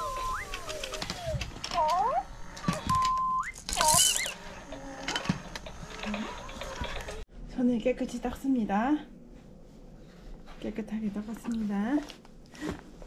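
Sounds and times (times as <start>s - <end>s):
toy whistle-like tones: 0.0s - 4.8s
toy clicks: 0.0s - 7.2s
toy rattling: 3.4s - 7.2s.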